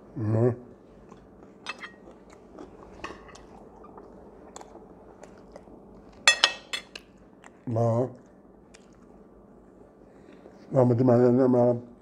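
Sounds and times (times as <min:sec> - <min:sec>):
chewing with wet mouth clicks: 0:01.0 - 0:06.2, 0:06.9 - 0:09.2.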